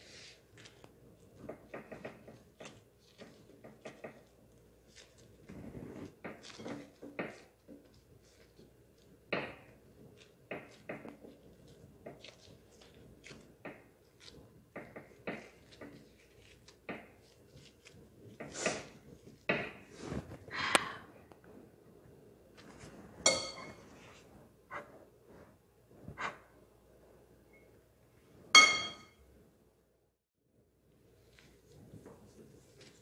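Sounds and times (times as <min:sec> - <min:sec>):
hand patting dough: 0:00.0 - 0:20.7
knocks and scrapes: 0:22.6 - 0:26.7.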